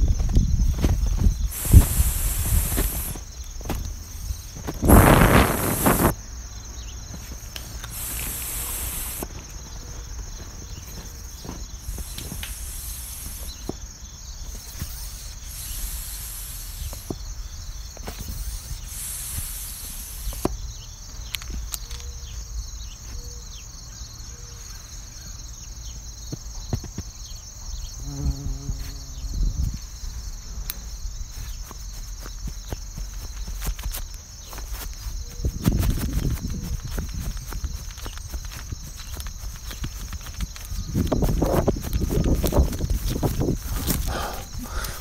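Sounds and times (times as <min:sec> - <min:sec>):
high hiss bursts: 0:01.4 - 0:06.2, 0:07.6 - 0:09.3, 0:11.8 - 0:13.8, 0:14.5 - 0:17.3, 0:18.0 - 0:20.5, 0:33.0 - 0:45.0.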